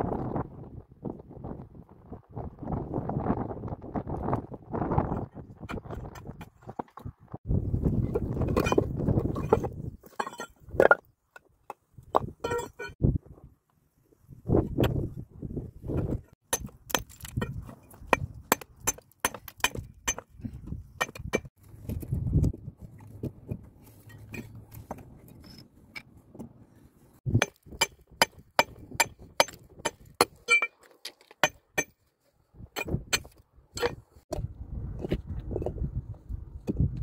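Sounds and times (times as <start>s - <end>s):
stones clinking against stone: 8.1s - 13.0s, 16.0s - 26.1s, 27.3s - 32.0s.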